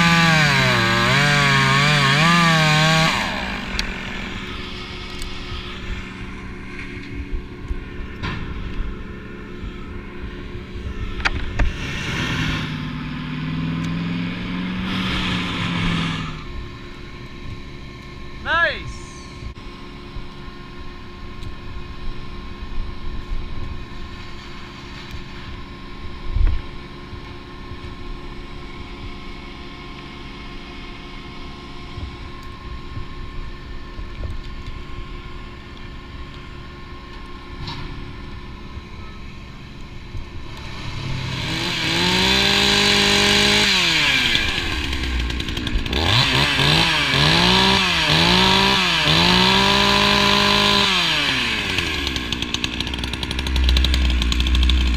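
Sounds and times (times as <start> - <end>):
chainsaw revving: 0.0 - 7.1, 11.1 - 16.8, 40.4 - 54.9.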